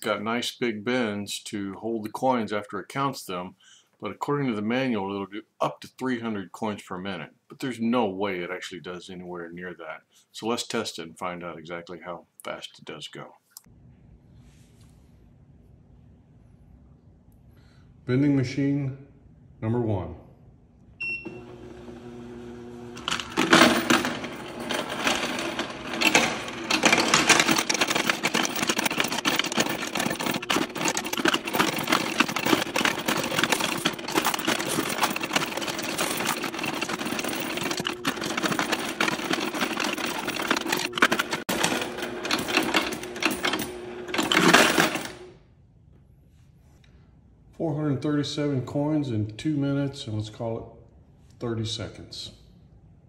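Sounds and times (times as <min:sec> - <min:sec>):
motor hum: 0:21.0 - 0:45.3
coins rattling through counter: 0:23.0 - 0:45.3.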